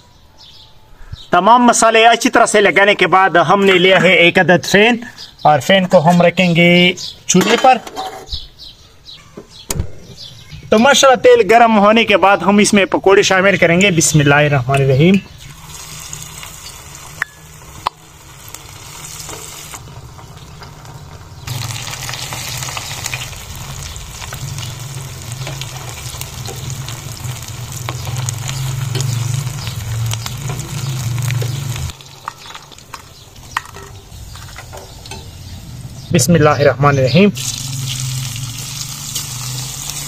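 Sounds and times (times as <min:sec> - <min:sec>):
food sizzling in hot oil: 0:15.4 - 0:34.2, 0:37.4 - 0:40.0.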